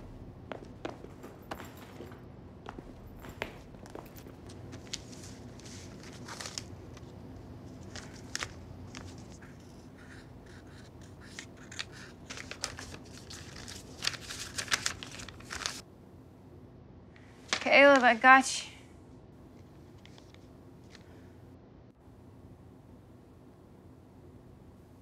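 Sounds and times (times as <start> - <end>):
faint room hum: 0.0 - 25.0
paper rustling and crinkling: 3.9 - 7.1, 7.7 - 15.8, 17.5 - 18.2.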